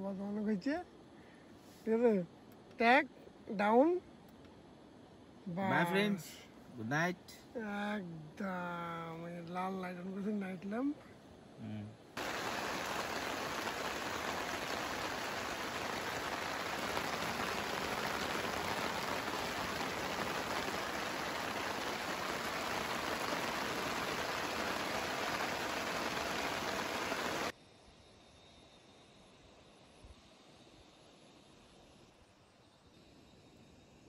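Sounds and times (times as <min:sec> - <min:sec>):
rain on tent and plastic: 0:12.2 - 0:27.5.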